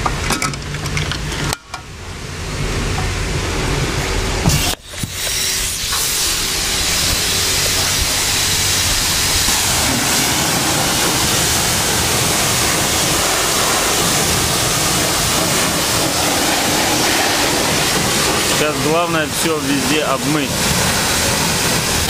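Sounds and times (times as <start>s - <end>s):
pressure washer spraying water: 3.6s - 22.0s.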